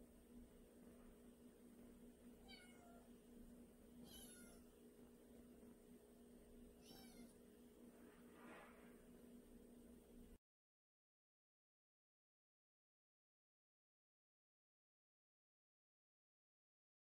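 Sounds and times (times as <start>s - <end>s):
cat meowing faintly: 2.4s - 3.1s, 4.0s - 4.7s, 6.8s - 7.4s.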